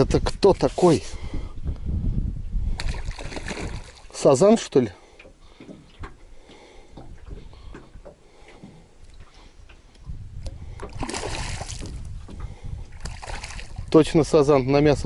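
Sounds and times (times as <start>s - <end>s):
fish splashing in water: 2.8s - 4.2s, 10.8s - 12.1s, 12.9s - 13.9s.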